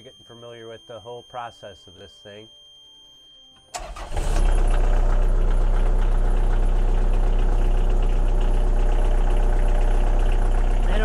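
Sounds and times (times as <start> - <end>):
diesel engine starting and idling: 3.7 - 11.0.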